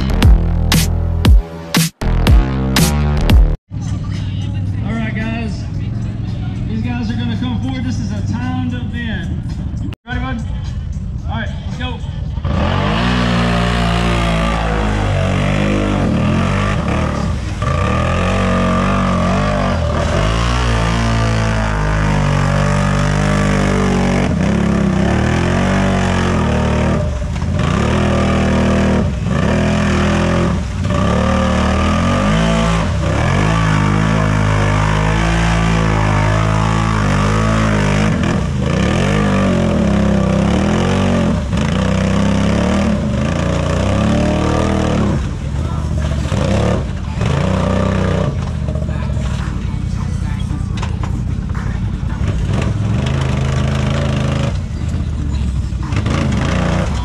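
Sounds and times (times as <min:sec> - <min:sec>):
racing engine revving hard: 0:12.4 - 0:45.4, 0:46.2 - 0:48.4, 0:55.9 - 0:57.0.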